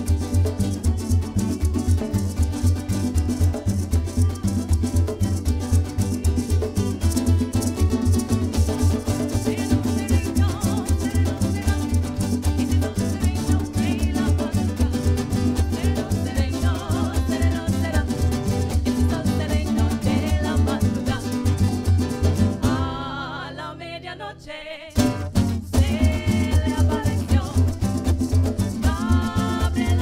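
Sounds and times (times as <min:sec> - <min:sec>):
strummed guitars: 0:00.0 - 0:23.6, 0:24.9 - 0:30.0
women singing: 0:08.1 - 0:21.8, 0:22.6 - 0:30.0.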